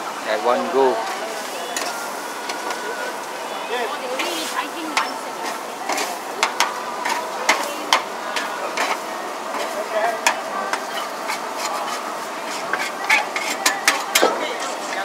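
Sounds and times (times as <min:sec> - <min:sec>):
frying sizzle: 0:00.0 - 0:15.0
metal spatula scraping a wok: 0:04.2 - 0:15.0.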